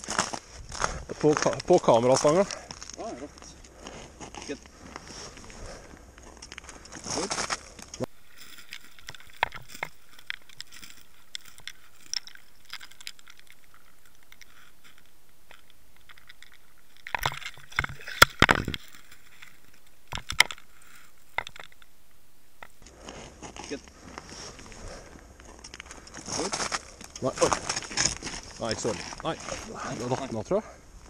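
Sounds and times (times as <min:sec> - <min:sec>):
handling rustle: 0:00.0 - 0:30.6
knocks and scrapes: 0:03.9 - 0:30.2
scattered clicks: 0:07.6 - 0:22.9.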